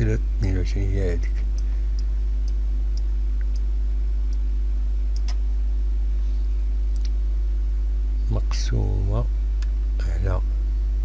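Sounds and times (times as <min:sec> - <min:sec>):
low electrical hum: 0:00.0 - 0:11.0
faint short clicks: 0:05.2 - 0:05.4, 0:06.9 - 0:07.2.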